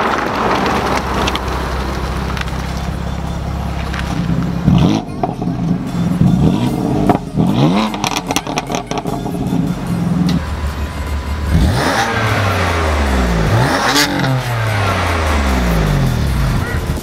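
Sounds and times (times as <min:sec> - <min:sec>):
exhaust crackles and pops: 0:00.0 - 0:10.6
car engine revving: 0:00.0 - 0:17.0.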